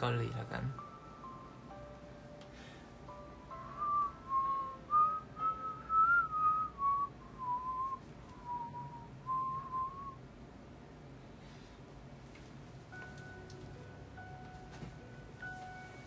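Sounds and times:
man whistling a tune: 0:03.6 - 0:10.2.

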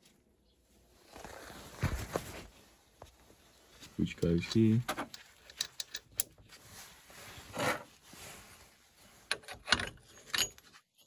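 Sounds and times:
metal clicks and clinks: 0:05.1 - 0:06.4, 0:09.3 - 0:11.0.

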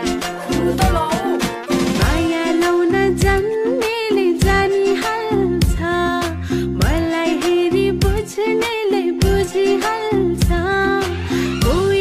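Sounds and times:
drum beat: 0:00.0 - 0:02.4
person singing: 0:00.0 - 0:12.0.

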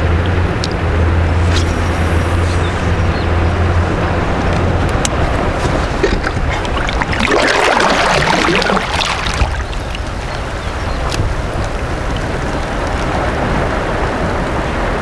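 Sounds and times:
wind noise on microphone: 0:00.0 - 0:15.0
water lapping against kayak: 0:01.2 - 0:15.0
kayak paddle splashing: 0:04.0 - 0:14.9.

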